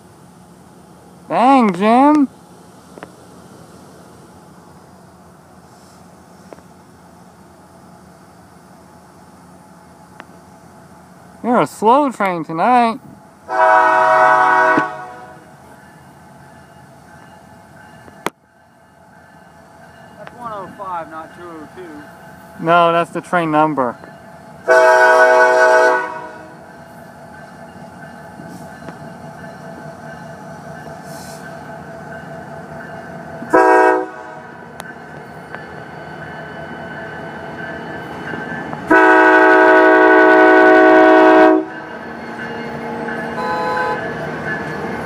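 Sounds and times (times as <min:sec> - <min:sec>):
train rumbling: 0:00.0 - 0:45.0
locomotive air horn blasts: 0:13.5 - 0:15.5, 0:24.6 - 0:26.5, 0:33.5 - 0:34.5, 0:38.9 - 0:41.7, 0:43.4 - 0:44.0.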